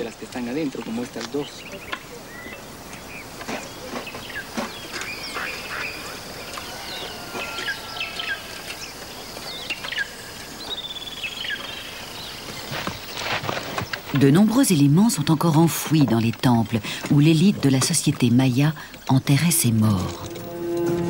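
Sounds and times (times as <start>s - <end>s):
birds chirping and whistling: 1.3s - 13.9s
bird trill: 1.6s - 12.4s.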